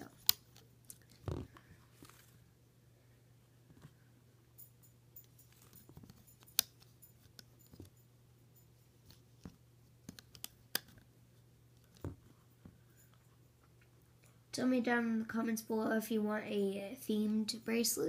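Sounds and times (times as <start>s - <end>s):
low steady hum: 0.0s - 18.0s
rubber bands clicking on pegs: 9.4s - 11.0s.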